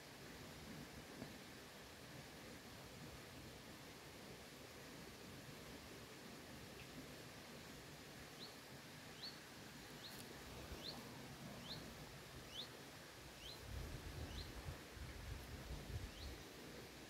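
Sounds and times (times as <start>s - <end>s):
small bird chirping: 8.4s - 9.4s, 10.0s - 11.0s, 11.6s - 11.9s, 12.5s - 12.8s, 13.4s - 13.7s, 14.3s - 14.6s, 16.1s - 16.4s.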